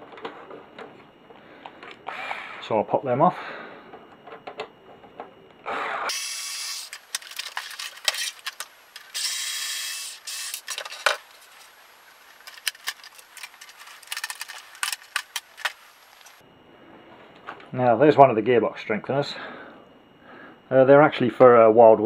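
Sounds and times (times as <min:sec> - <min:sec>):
cordless drill running: 0:02.1 - 0:02.6, 0:05.8 - 0:10.8
plastic parts clicking and knocking: 0:04.2 - 0:05.3, 0:06.8 - 0:09.4, 0:10.3 - 0:11.7, 0:12.3 - 0:16.4.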